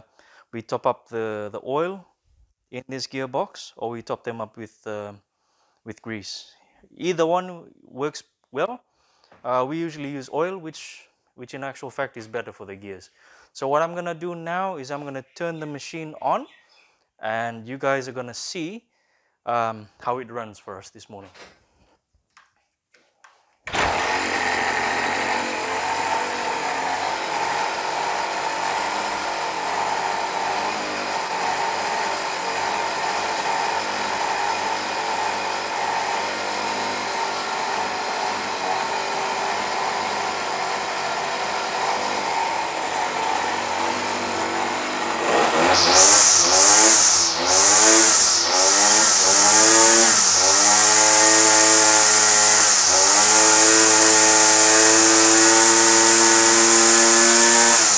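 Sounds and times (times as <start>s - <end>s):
small engine idling and revving: 23.7s - 57.9s.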